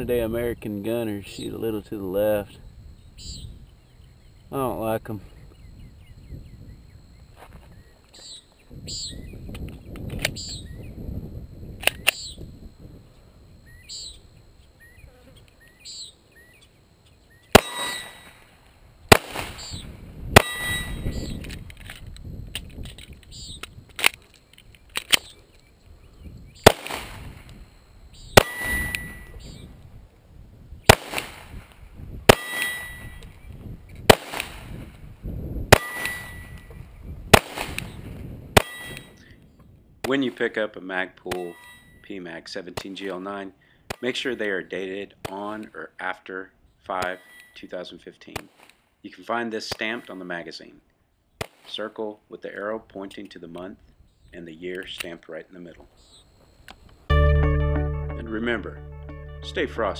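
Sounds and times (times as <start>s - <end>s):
pistol shots: 17.5s - 18.5s, 19.1s - 19.8s, 20.4s - 21.4s, 26.6s - 27.4s, 28.4s - 29.2s, 30.9s - 31.6s, 32.3s - 33.1s, 34.1s - 34.8s, 35.7s - 36.6s, 37.3s - 38.0s, 38.6s - 39.1s
steel targets ringing clang: 17.6s - 18.5s, 20.4s - 21.3s, 28.4s - 29.6s, 32.3s - 33.2s, 35.7s - 36.7s, 38.6s - 39.2s.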